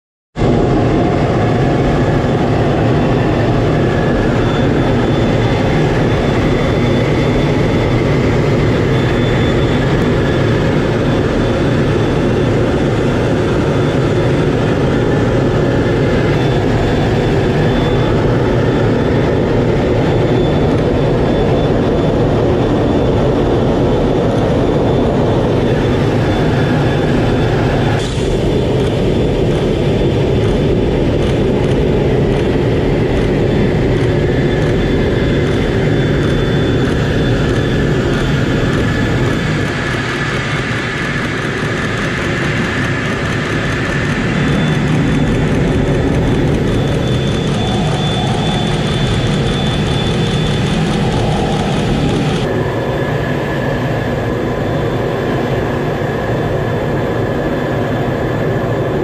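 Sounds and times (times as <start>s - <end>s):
jet engine and airflow noise: 0.4s - 59.0s
thin high whine: 0.4s - 59.0s.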